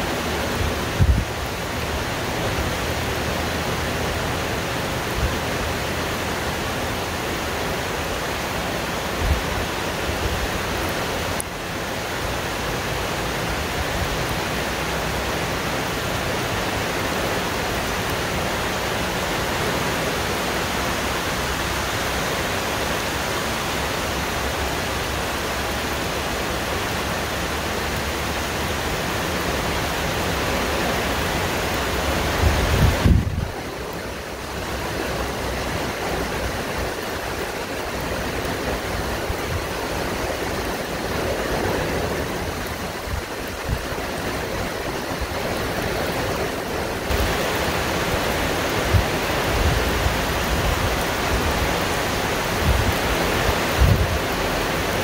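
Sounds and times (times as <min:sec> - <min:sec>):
heavy rain on foliage: 0:00.0 - 0:55.0
strong wind: 0:00.0 - 0:55.0
wind buffeting microphone: 0:00.3 - 0:02.6, 0:31.9 - 0:34.6, 0:35.3 - 0:54.9.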